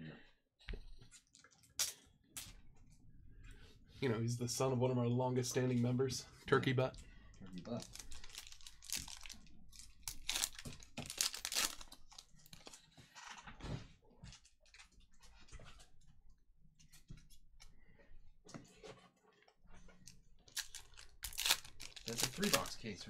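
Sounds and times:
foil wrappers crinkling: 0:07.7 - 0:12.8, 0:20.5 - 0:22.9
cards being handled: 0:20.5 - 0:22.8.

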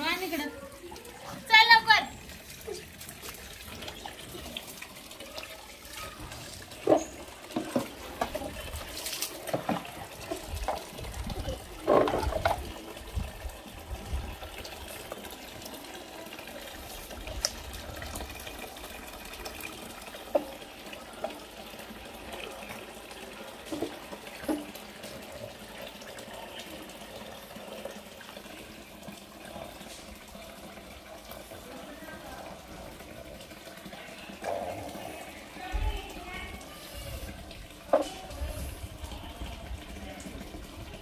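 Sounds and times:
water splashing and trickling: 0:00.0 - 0:41.0.

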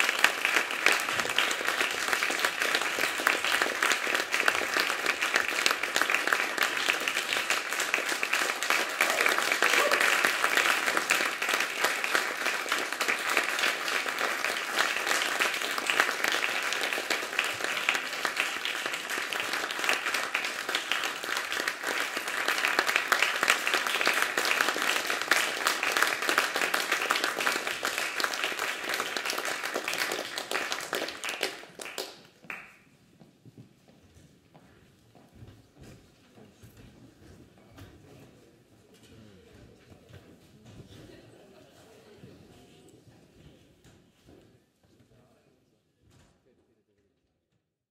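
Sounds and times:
audience applauding: 0:00.0 - 0:32.9.

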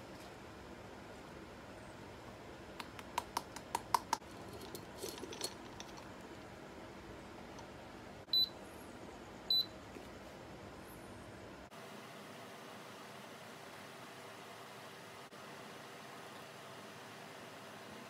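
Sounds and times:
coffee gear clicks and knocks: 0:02.8 - 0:06.5.

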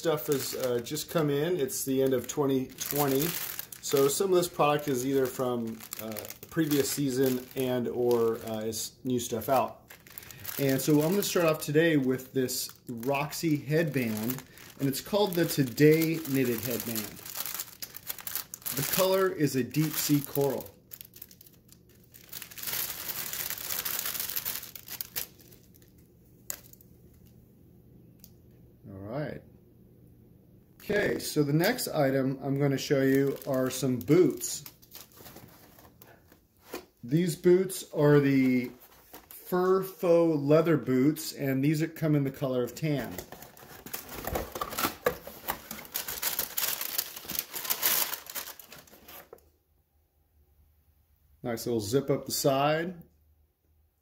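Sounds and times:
plastic bag crinkling: 0:00.0 - 0:27.3, 0:31.6 - 0:36.9, 0:38.6 - 0:39.5, 0:43.0 - 0:49.4.

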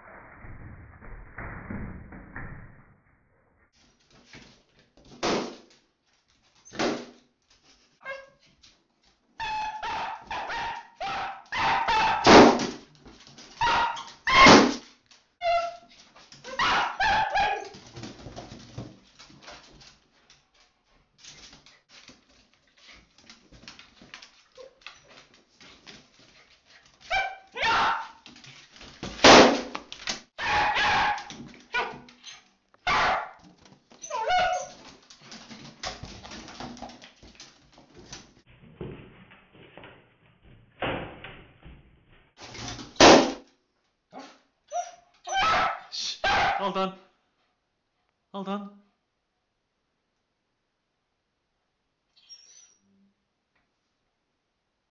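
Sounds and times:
dog barking harshly: 0:09.8 - 0:12.7, 0:13.6 - 0:14.8, 0:16.6 - 0:17.7, 0:27.1 - 0:28.2, 0:30.4 - 0:32.1, 0:32.9 - 0:33.4, 0:45.3 - 0:46.7.

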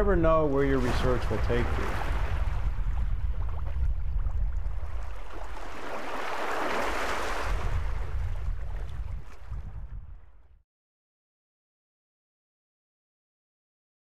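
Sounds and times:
wind on microphone: 0:00.0 - 0:10.6
water lapping at shoreline: 0:00.2 - 0:10.4.

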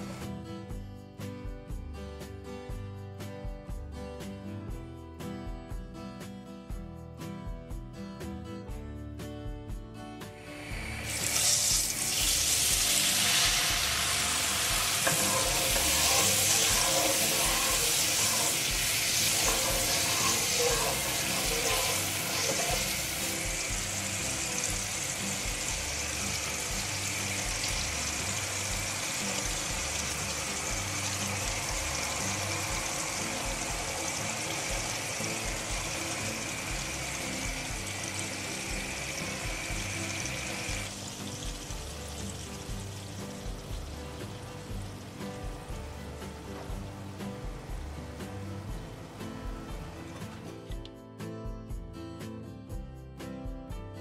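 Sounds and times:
faint background music: 0:00.0 - 0:54.0
spices sizzling in hot oil: 0:10.2 - 0:50.6.

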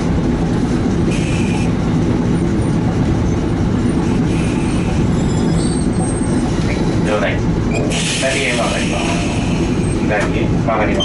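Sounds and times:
streetcar rumbling on rails: 0:00.0 - 0:11.0
wheel squeals on curve: 0:04.4 - 0:06.5.

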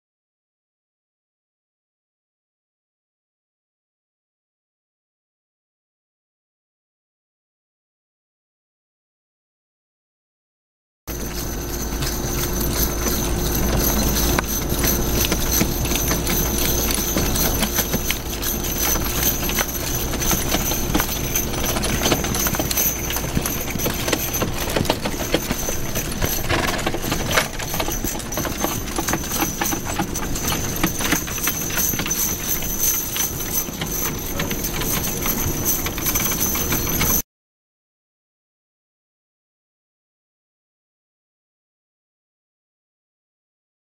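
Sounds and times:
horse hoofbeats on grass: 0:11.1 - 0:37.2
wagon rattling: 0:11.1 - 0:37.2.

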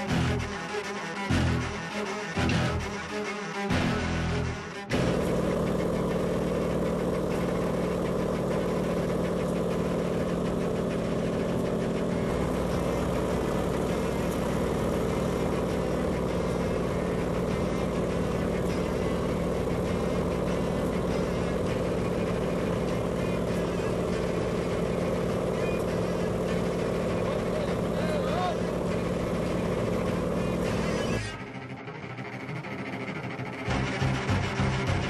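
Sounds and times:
light aircraft engine droning: 0:00.0 - 0:35.0
music: 0:00.0 - 0:35.0.

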